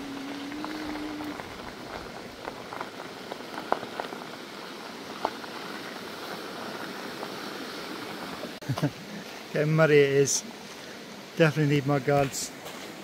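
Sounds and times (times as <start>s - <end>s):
bike tyres crunching on gravel: 0.0s - 8.9s.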